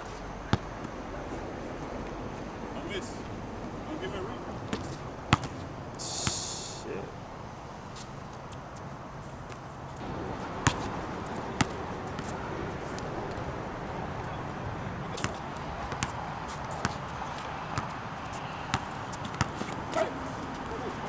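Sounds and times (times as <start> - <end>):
steady background hiss: 0.0 - 21.0
basketball bouncing on hard court: 4.7 - 5.6, 10.6 - 10.9, 11.6 - 12.3, 15.2 - 17.0, 17.7 - 18.0, 18.7 - 19.8.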